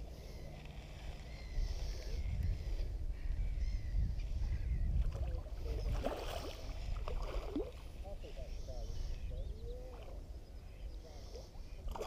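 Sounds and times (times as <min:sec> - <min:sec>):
wind buffeting microphone: 0:01.4 - 0:12.0
birds chirping faintly: 0:07.6 - 0:12.0.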